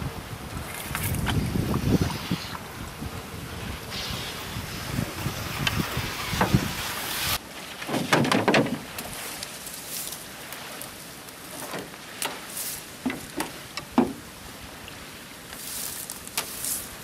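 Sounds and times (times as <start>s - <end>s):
wind rumbling on microphone: 0.0s - 17.0s
water splashing and dripping: 3.9s - 17.0s
light knocks on canoe: 13.0s - 14.2s.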